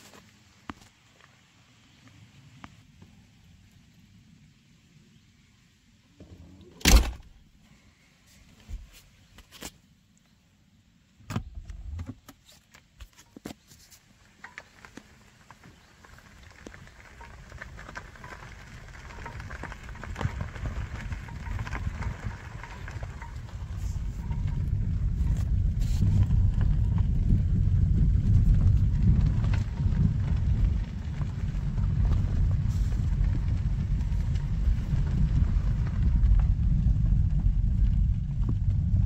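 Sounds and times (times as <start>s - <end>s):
tyres on gravel: 0.0s - 3.2s, 11.4s - 39.0s.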